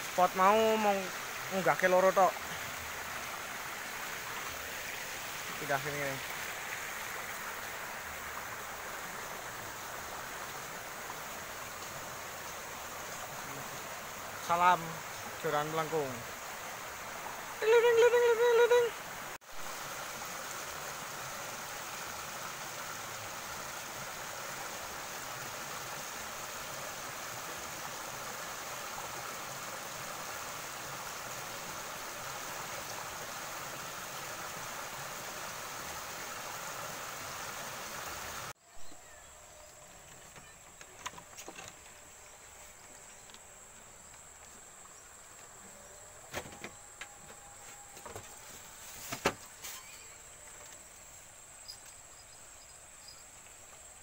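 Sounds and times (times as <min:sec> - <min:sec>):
water rushing over rocks: 0:00.0 - 0:38.6.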